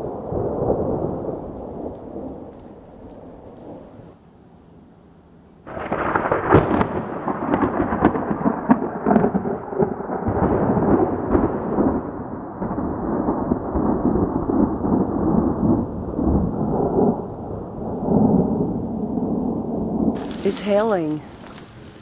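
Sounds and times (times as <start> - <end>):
hailstones cracking: 1.4 - 3.9, 5.7 - 14.2, 20.2 - 22.0
hail and rain falling hard: 5.7 - 15.4, 20.2 - 22.0.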